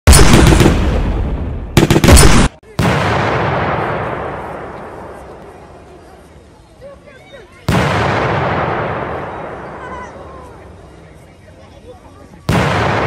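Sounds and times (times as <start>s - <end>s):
fireworks bursting with loud bangs: 0.1s - 5.6s, 7.6s - 9.9s, 12.4s - 13.0s.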